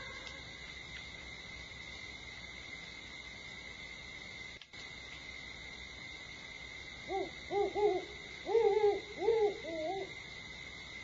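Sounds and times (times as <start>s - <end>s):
owl hooting: 7.0s - 10.2s.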